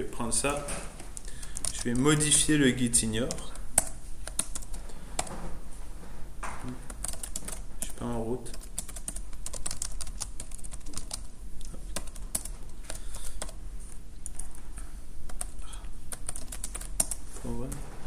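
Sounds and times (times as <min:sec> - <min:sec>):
steady low hum: 0:00.0 - 0:18.0
keyboard typing clicks: 0:03.2 - 0:05.3, 0:06.6 - 0:13.6, 0:15.3 - 0:17.2.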